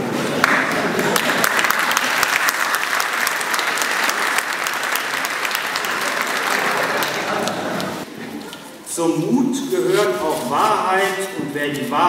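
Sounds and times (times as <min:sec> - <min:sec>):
audience applauding: 0:00.4 - 0:08.0.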